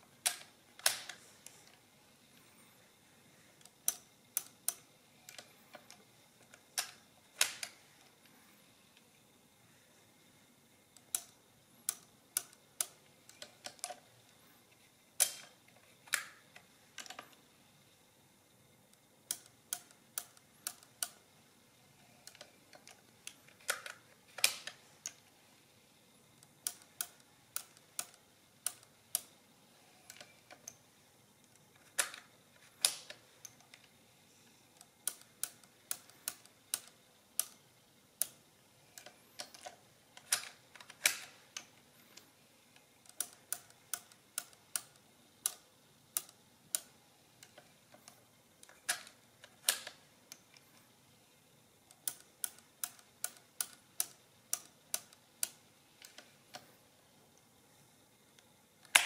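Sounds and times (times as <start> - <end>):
mechanical calculator clicking: 19.2 - 21.2, 26.4 - 30.8, 34.6 - 37.6, 38.2 - 50.6, 51.9 - 56.7.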